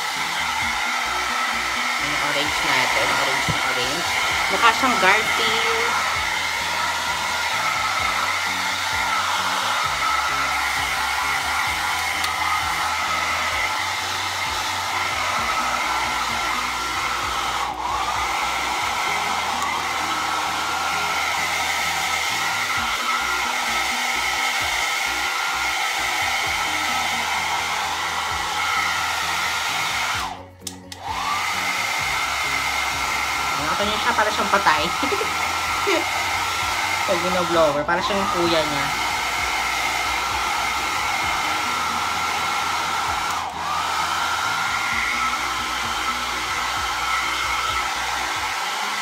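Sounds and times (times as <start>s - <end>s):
hair dryer blowing: 0.0s - 49.0s.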